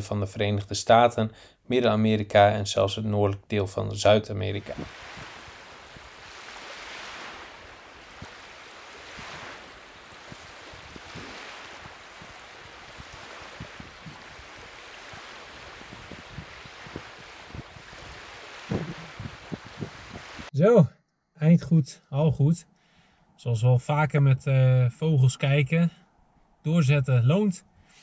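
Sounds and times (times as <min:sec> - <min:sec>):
waves lapping: 0:04.5 - 0:20.5
wind over water: 0:04.6 - 0:20.5.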